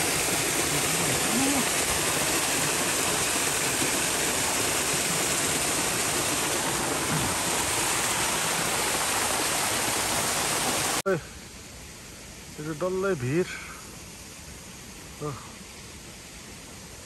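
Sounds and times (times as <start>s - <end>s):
stream water rushing: 0.0s - 17.0s.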